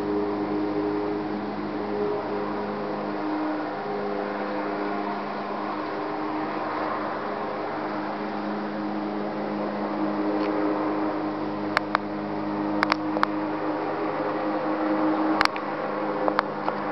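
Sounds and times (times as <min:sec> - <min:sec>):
mechanical hum: 0:00.0 - 0:16.9
sharp clicks: 0:12.8 - 0:13.4.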